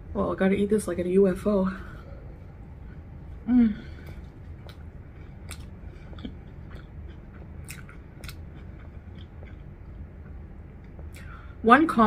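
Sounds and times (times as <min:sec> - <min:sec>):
low hum: 0:00.0 - 0:12.0
person chewing: 0:02.8 - 0:11.3.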